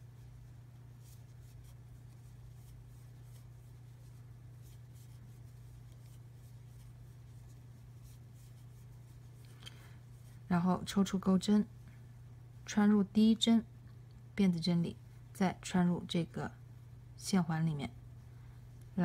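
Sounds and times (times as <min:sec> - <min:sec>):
crochet hook scratching yarn: 0:00.0 - 0:11.4
steady low hum: 0:00.0 - 0:19.0.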